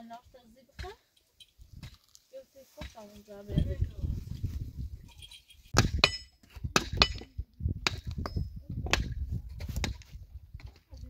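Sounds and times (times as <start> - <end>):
sharp metallic clinks: 0.9 - 2.0, 4.9 - 6.4.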